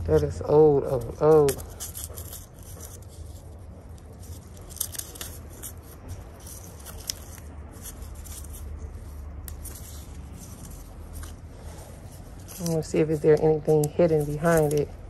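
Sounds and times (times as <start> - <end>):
crackles and scratches of peeling: 0.0 - 15.0.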